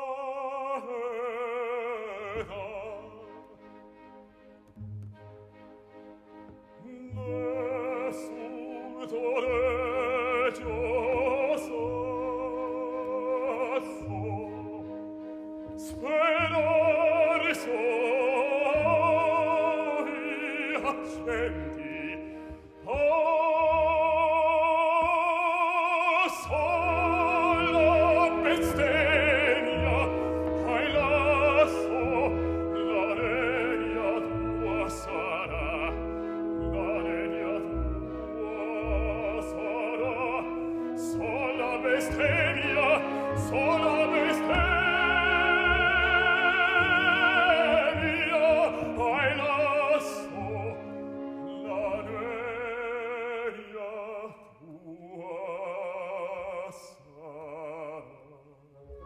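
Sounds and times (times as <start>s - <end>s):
operatic baritone singing: 0.0s - 3.8s, 6.8s - 59.0s
symphony orchestra: 0.0s - 59.0s.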